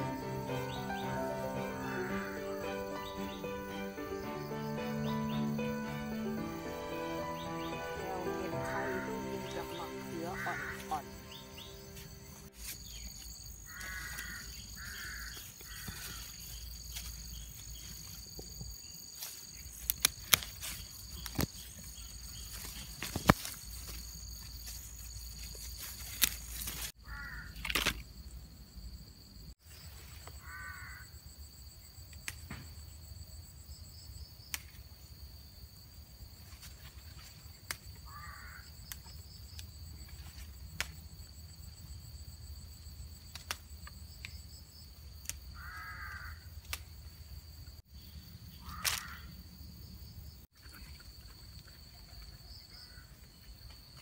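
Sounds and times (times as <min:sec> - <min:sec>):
insects droning: 0:00.0 - 0:54.0
crow cawing: 0:01.6 - 0:03.0, 0:07.3 - 0:12.0, 0:13.7 - 0:16.3, 0:27.0 - 0:27.6, 0:30.4 - 0:31.1, 0:38.0 - 0:38.7, 0:45.6 - 0:46.5, 0:48.6 - 0:49.3
plants clicking when picked: 0:19.2 - 0:24.8, 0:25.4 - 0:26.9, 0:27.6 - 0:28.1, 0:43.2 - 0:44.4, 0:48.7 - 0:49.2.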